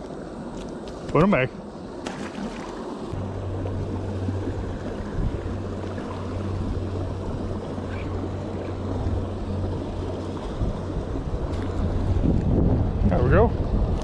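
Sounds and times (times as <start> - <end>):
low rumble: 3.0 - 14.0.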